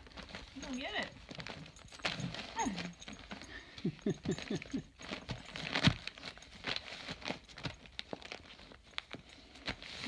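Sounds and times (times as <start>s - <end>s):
wrapping paper crinkling: 0.0s - 10.0s.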